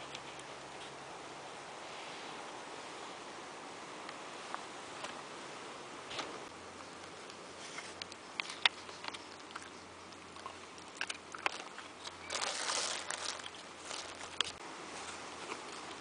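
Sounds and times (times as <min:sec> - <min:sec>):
small clicks and crackles: 0:06.1 - 0:16.0
dog chewing: 0:07.0 - 0:16.0
plastic bag crinkling: 0:10.3 - 0:14.6.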